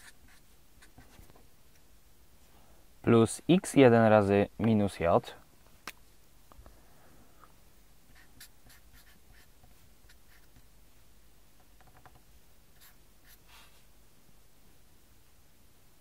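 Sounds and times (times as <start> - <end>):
felt-tip marker scratching on paper: 0.0 - 1.2, 8.1 - 10.6, 12.8 - 13.7.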